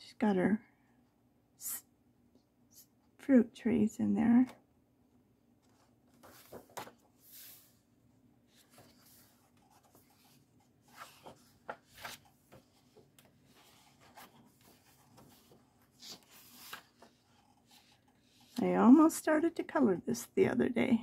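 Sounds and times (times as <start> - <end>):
paper pages rustling: 5.6 - 7.8, 8.4 - 18.6.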